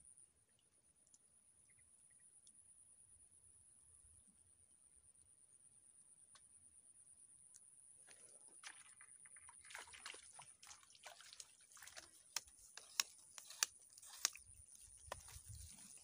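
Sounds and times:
water splashing: 8.2 - 16.0.

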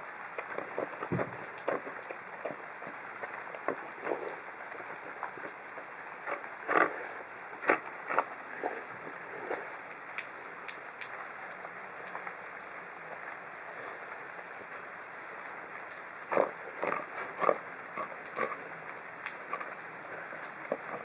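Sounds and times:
steady hiss: 0.0 - 21.0
dog chewing food: 0.2 - 9.9, 15.9 - 21.0.

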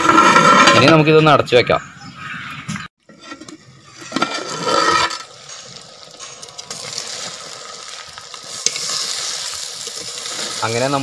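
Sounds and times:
chicken sizzling in pan: 5.2 - 11.0.

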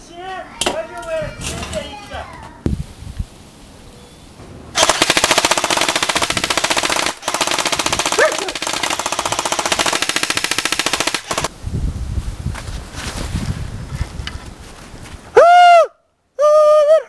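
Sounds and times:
automatic gunfire bursts: 4.8 - 11.5.

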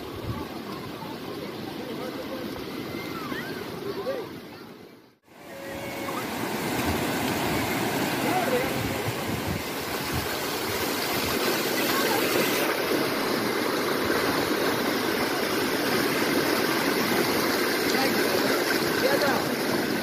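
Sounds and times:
water cascading over ledges: 5.3 - 20.0.

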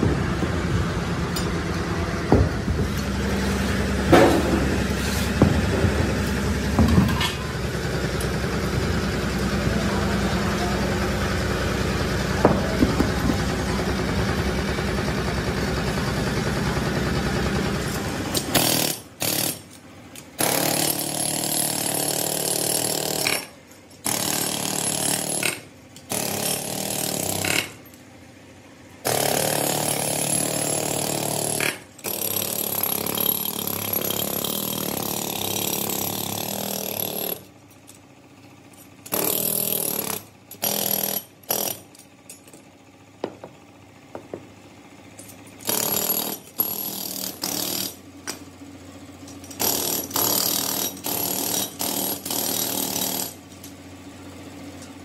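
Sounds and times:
pneumatic chipping hammer: 0.0 - 10.3, 11.3 - 28.0, 29.0 - 43.5, 45.2 - 48.6, 49.2 - 54.0
steady mechanical rumble: 0.0 - 21.2, 30.0 - 52.3.

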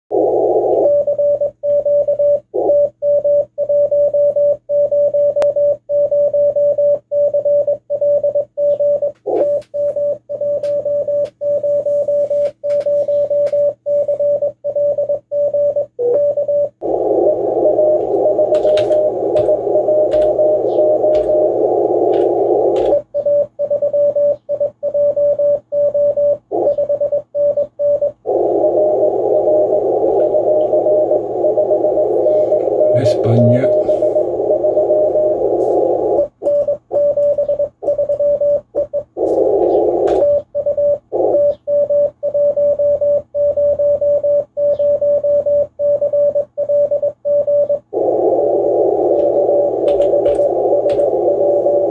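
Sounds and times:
morse code tone: 0.1 - 51.9
weak keyed signal: 16.1 - 51.9
radio receiver hiss: 16.8 - 23.0, 28.2 - 38.0, 39.1 - 40.3, 47.9 - 51.9.

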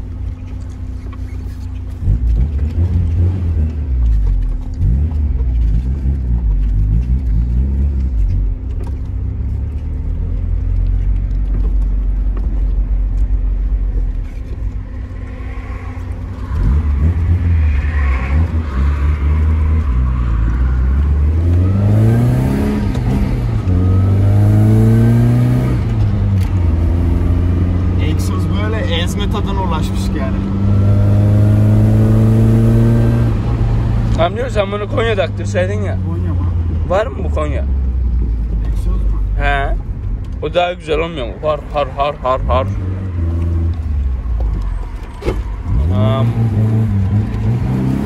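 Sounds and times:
car engine accelerating: 0.0 - 48.0.

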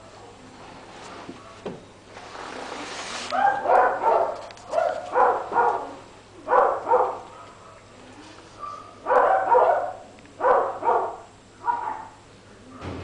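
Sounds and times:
dog barking: 3.3 - 7.9, 8.6 - 13.0.

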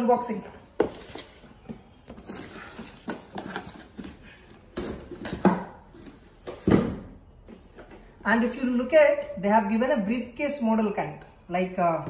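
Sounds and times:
cardboard boxes scuffing on tiles: 0.7 - 8.2
boxes thumping: 0.8 - 8.0.

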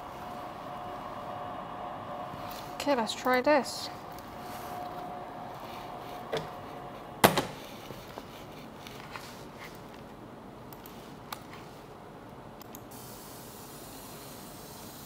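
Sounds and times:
enclosure door click: 7.2 - 7.6.

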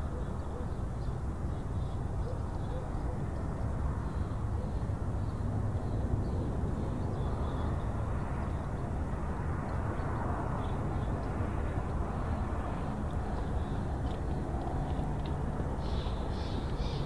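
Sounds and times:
low rumbling background noise: 0.0 - 17.0.

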